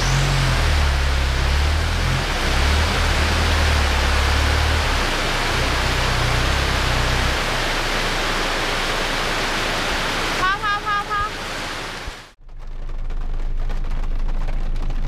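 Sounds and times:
pickup truck engine rumble: 0.0 - 10.5
heavy rain pouring: 0.0 - 12.4.

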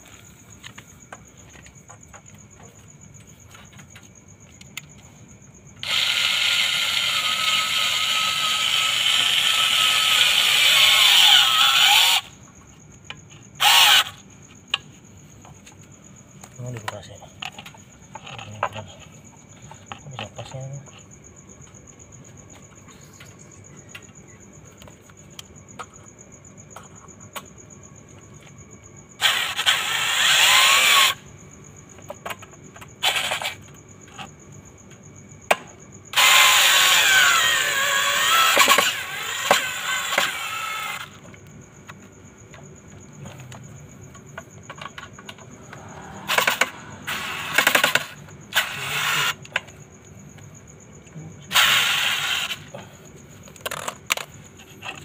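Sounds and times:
cordless drill drilling plastic pipe: 5.8 - 12.3, 13.6 - 14.2, 29.2 - 31.2, 33.0 - 33.6, 36.1 - 41.2, 46.3 - 49.4, 51.5 - 52.7.

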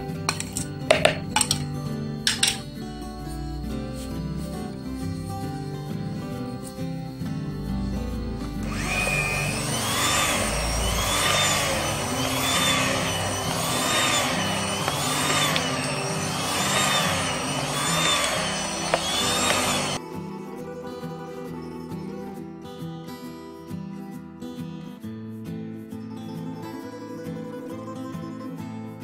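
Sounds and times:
background music: 0.0 - 24.4
electric hand mixer whining: 8.4 - 20.0.

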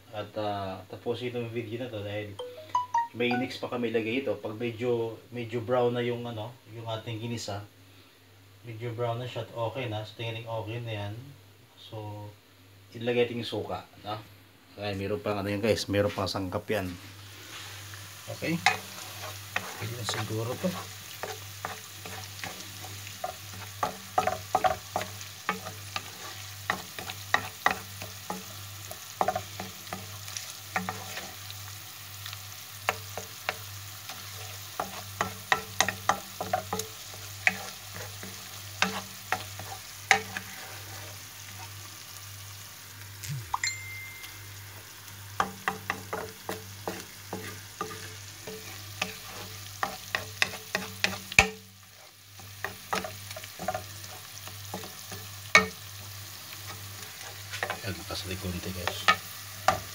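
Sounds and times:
sauce sizzling in oil: 15.3 - 59.9
spatula clacking against pan: 19.5 - 28.6, 29.2 - 30.1, 32.9 - 40.4, 45.4 - 51.7, 52.4 - 55.8.

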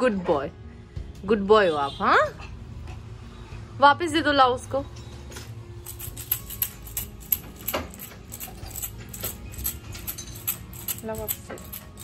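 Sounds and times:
objects rattling in a shaken jar: 5.8 - 12.0.

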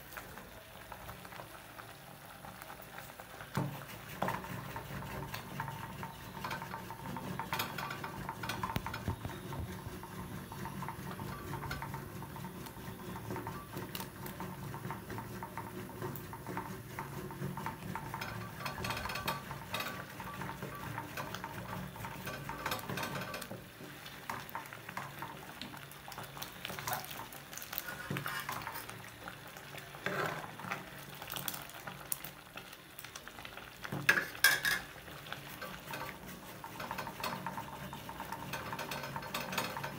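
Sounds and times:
wooden stick scraping a metal pot: 15.5 - 23.6, 27.6 - 29.0, 30.0 - 30.6.

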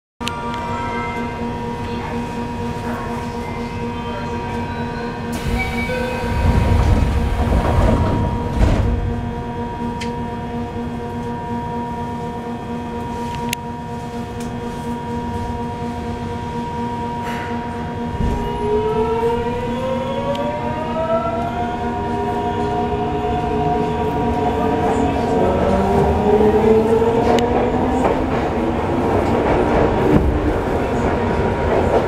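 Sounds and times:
subway car humming: 0.2 - 32.0
train inverter whine rising: 0.2 - 32.0.

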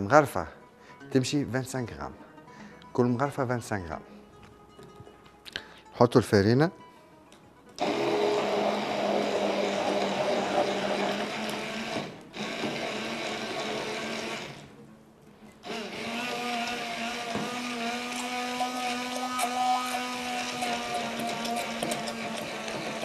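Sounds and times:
stick blender running in bowl: 7.8 - 14.7, 15.6 - 23.0.

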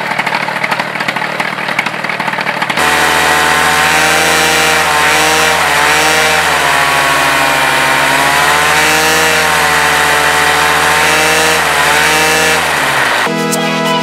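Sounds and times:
two-stroke engine running: 0.0 - 13.3
music: 13.3 - 14.0.

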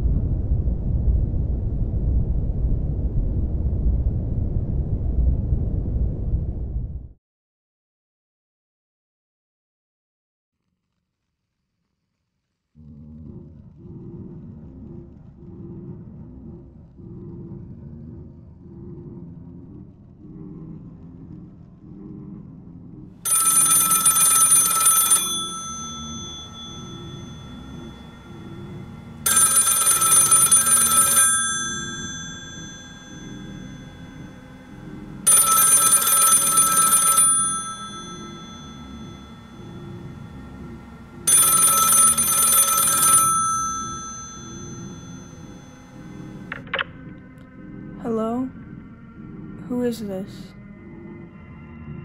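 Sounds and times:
telephone ringing: 23.3 - 47.0.

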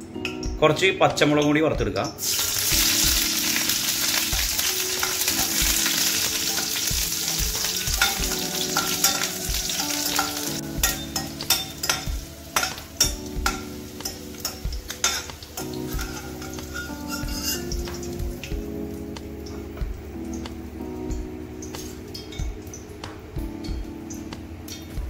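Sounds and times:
chillies sizzling in hot oil: 1.4 - 25.0
steel spoon scraping a pan: 4.0 - 18.0.

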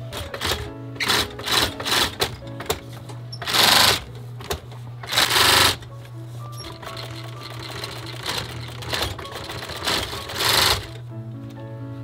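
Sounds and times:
steady low hum: 0.0 - 12.0
sewing machine fast stitching: 0.1 - 2.4, 3.4 - 4.1, 5.0 - 5.8, 6.6 - 11.0.

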